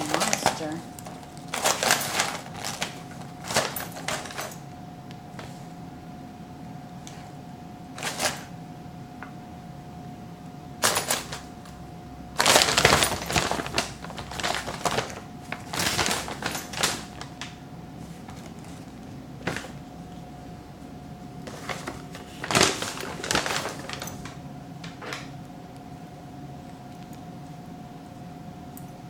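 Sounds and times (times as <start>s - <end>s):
paper bag crinkling: 0.0s - 4.6s, 8.0s - 8.5s, 12.4s - 19.9s, 21.4s - 25.3s.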